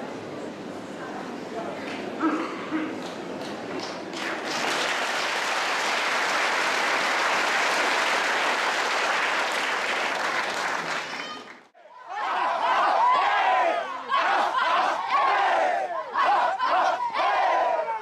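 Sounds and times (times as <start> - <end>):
crowd applauding: 3.0 - 11.7
men shouting: 12.1 - 18.0.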